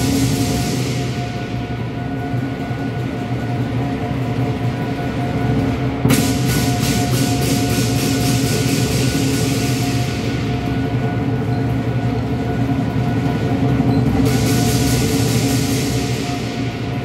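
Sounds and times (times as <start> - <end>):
cymbal clashes: 0.0 - 2.3, 6.0 - 11.2
big drum beating: 0.0 - 17.0.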